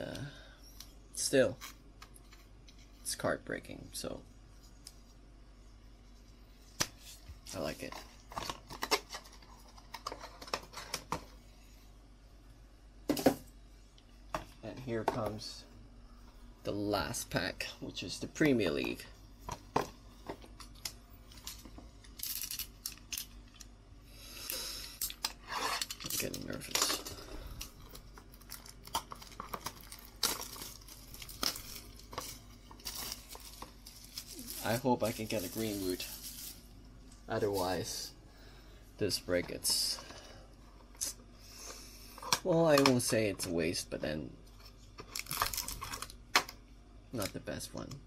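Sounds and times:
shrink wrap crinkling: 20.5 - 23.7, 25.0 - 38.1, 44.6 - 46.4.

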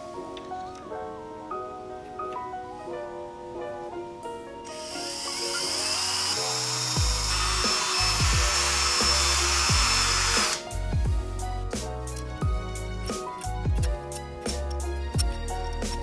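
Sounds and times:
power drill boring into metal: 4.8 - 10.7
background music with beat: 7.0 - 16.0.

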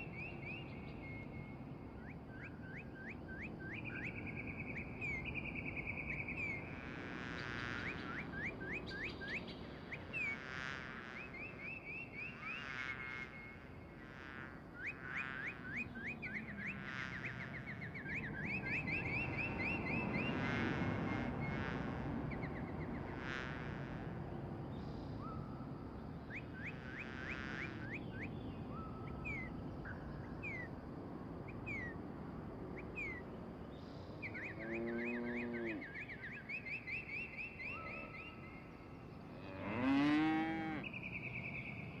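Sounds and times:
small birds chirping: 32.8 - 42.0
long low animal calls: 34.2 - 36.0.

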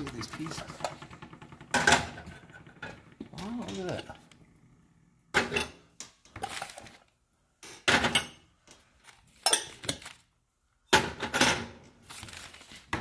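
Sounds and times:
metal toy pots clattering: 0.0 - 4.1, 5.3 - 8.5, 9.3 - 10.2.

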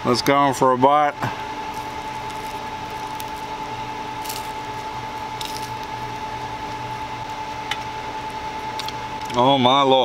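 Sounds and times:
machine hum with high tone: 0.0 - 10.0
person chewing food: 1.7 - 3.6, 4.2 - 6.8.

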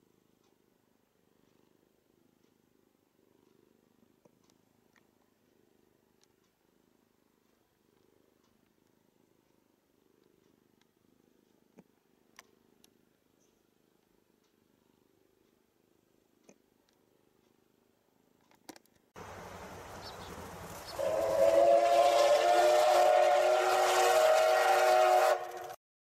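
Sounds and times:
soft clicks: 7.4 - 14.6.

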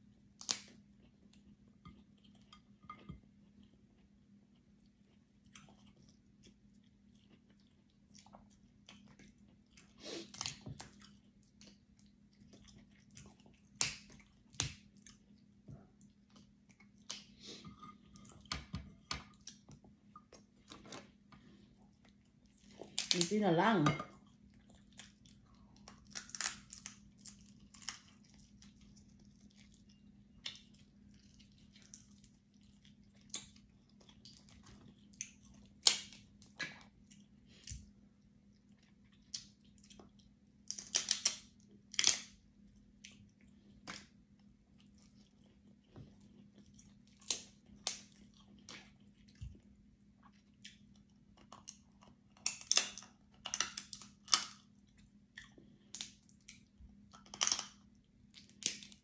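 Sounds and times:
faint steady hum: 0.0 - 59.0
person chewing: 0.3 - 23.2, 24.2 - 42.2, 43.0 - 59.0
crab shell crunching: 25.1 - 28.2, 57.1 - 59.0.

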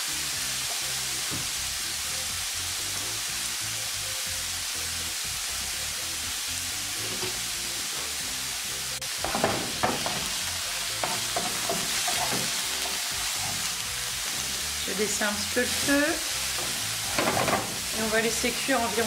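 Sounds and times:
mushrooms sizzling in a frying pan: 0.0 - 19.0
wooden spoon scraping a pan: 7.0 - 7.4, 11.0 - 14.7, 15.6 - 18.2.

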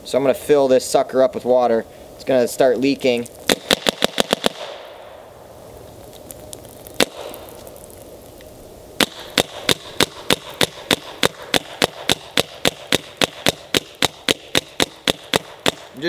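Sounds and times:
paintball marker firing: 3.5 - 4.9, 6.9 - 7.6, 9.0 - 16.0.

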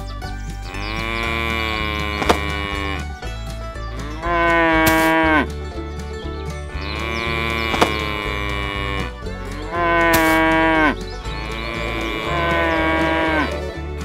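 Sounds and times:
background music with low beat: 0.0 - 14.0
cattle mooing: 0.7 - 3.2, 4.0 - 5.5, 6.8 - 13.7.

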